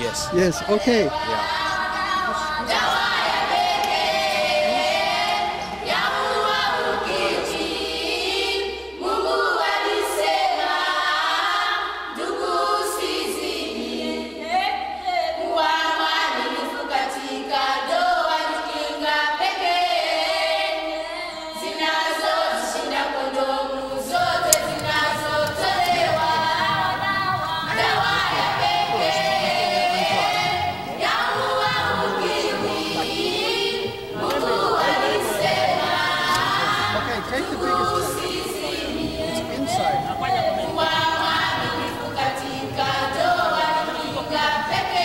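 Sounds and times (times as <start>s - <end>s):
choir singing a cappella: 0.0s - 45.0s.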